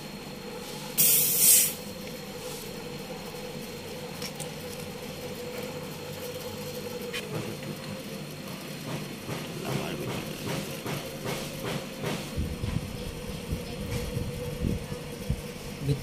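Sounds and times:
steady low hum: 0:00.0 - 0:16.0
refrigerant gas hissing from valve: 0:00.6 - 0:02.8.

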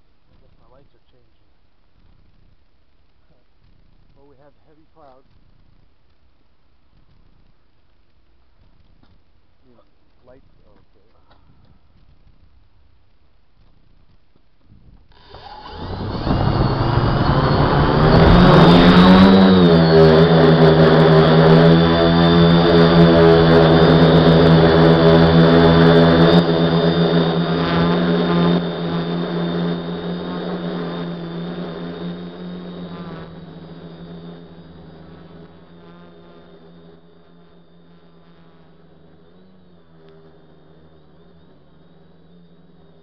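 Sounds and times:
drone motors and propellers: 0:13.6 - 0:43.0.

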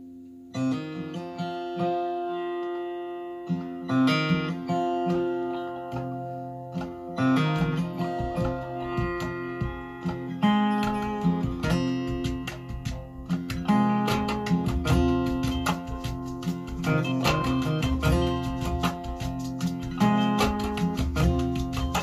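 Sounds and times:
acoustic guitar music over loudspeakers: 0:00.0 - 0:22.0.

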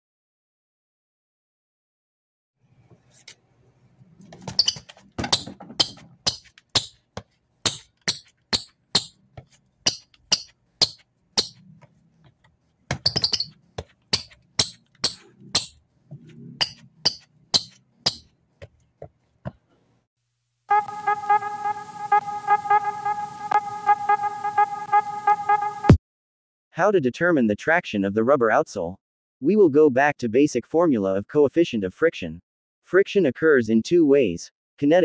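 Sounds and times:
shoes squeaking on hard floor: 0:04.3 - 0:19.6.

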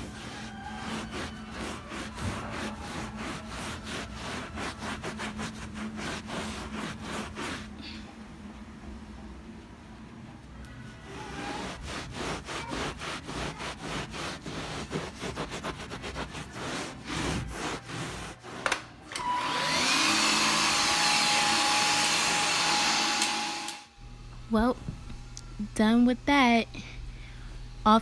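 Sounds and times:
scrubbing carpet: 0:00.0 - 0:08.0, 0:11.1 - 0:18.8
vacuum cleaner motor whine: 0:18.6 - 0:25.6.

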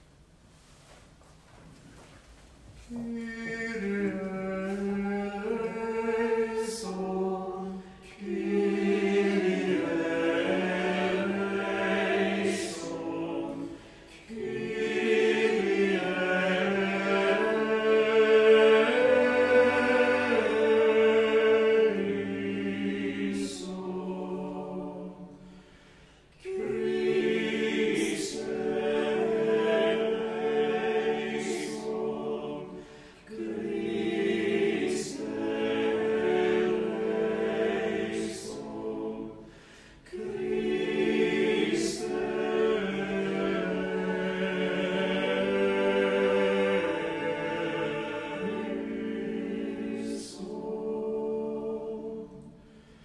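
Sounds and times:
small choir singing a cappella: 0:02.8 - 0:53.0.

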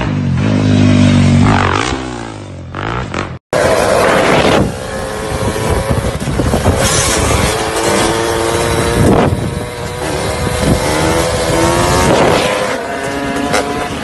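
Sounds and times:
dirt bike engine revving: 0:00.0 - 0:14.0
wind on microphone: 0:03.7 - 0:14.0.

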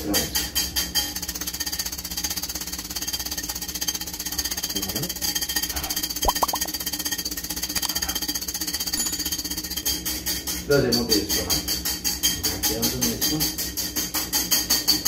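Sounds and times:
whisk clattering against bowl: 0:09.5 - 0:15.0.

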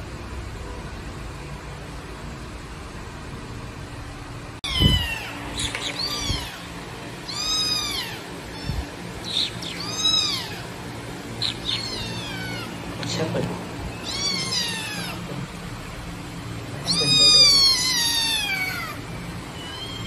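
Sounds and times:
kitten meowing: 0:04.6 - 0:10.8, 0:11.4 - 0:12.8, 0:13.9 - 0:15.5, 0:16.8 - 0:19.0, 0:19.6 - 0:20.0.

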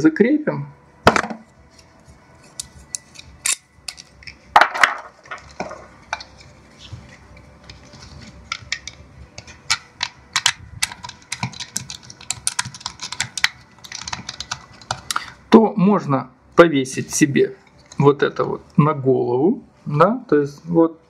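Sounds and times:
plastic parts clicking: 0:08.5 - 0:15.4.

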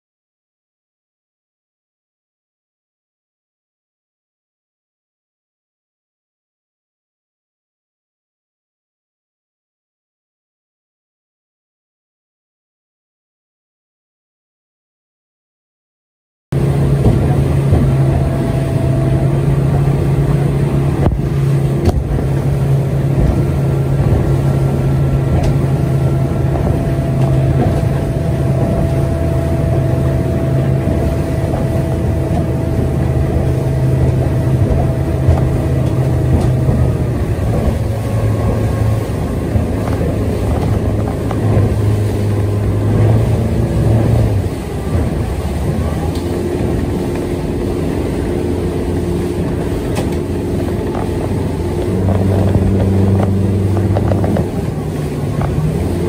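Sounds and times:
boat over choppy water: 0:16.5 - 0:56.0
outboard motor running: 0:16.5 - 0:56.0.

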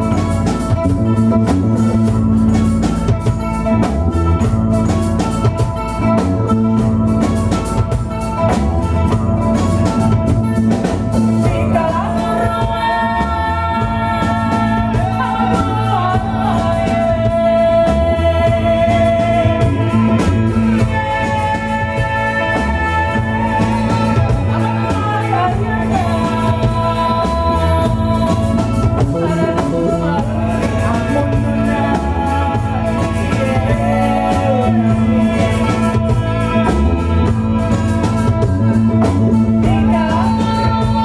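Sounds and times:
acoustic guitar: 0:00.0 - 0:41.0
bass guitar: 0:00.0 - 0:41.0
drum kit: 0:00.0 - 0:41.0
hand drum: 0:00.0 - 0:41.0
women singing: 0:11.3 - 0:41.0.

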